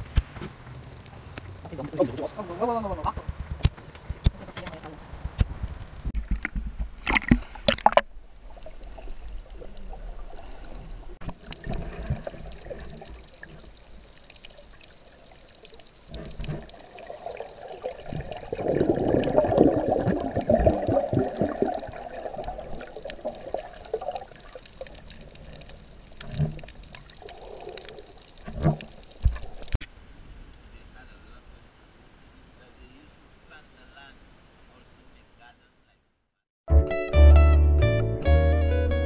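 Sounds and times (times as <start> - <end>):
underwater sloshing and bubbling: 5.8 - 29.8
water splashing: 6.2 - 29.8.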